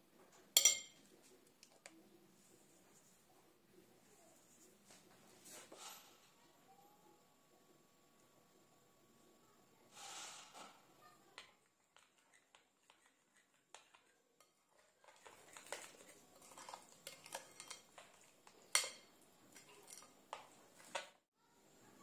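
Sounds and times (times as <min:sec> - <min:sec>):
spoon scraping glass bowl: 0:12.0 - 0:20.1.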